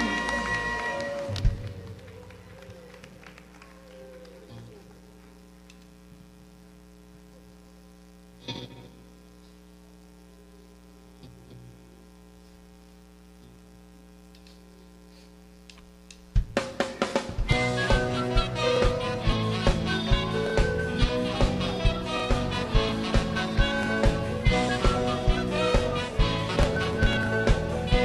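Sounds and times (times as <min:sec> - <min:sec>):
electrical mains hum: 0:00.0 - 0:28.0
music with drums: 0:16.3 - 0:28.0.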